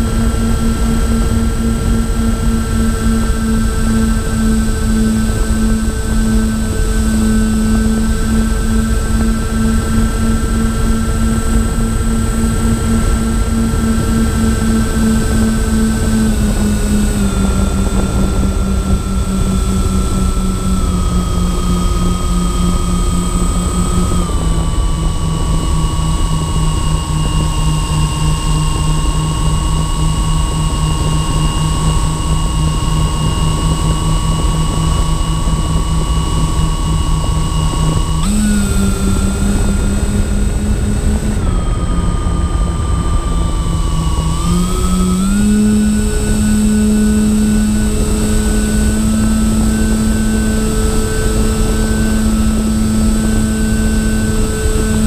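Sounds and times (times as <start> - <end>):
plane motors and propellers droning: 0.0 - 55.0
thin high whine: 0.0 - 55.0.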